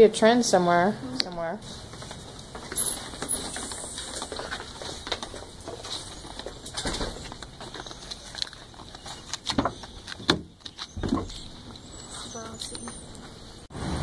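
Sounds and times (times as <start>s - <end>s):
footsteps: 1.2s - 13.7s.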